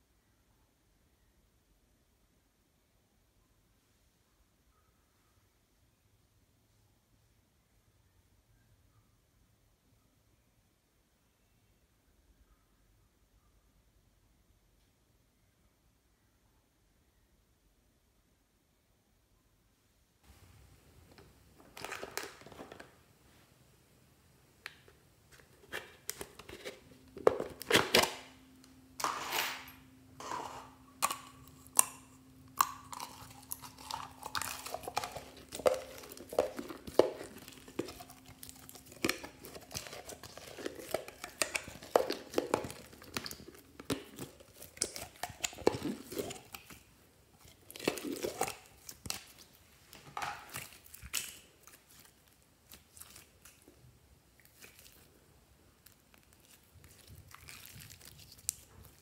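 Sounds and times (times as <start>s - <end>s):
plastic container crinkling: 21.6s - 23.0s, 24.7s - 28.4s, 29.0s - 53.8s, 55.8s - 59.0s
sticky slime crackles and pops: 31.0s - 46.9s, 50.3s - 53.6s, 55.8s - 59.0s
slime squeezing and pulling: 50.4s - 53.6s, 54.4s - 55.1s, 55.8s - 59.0s.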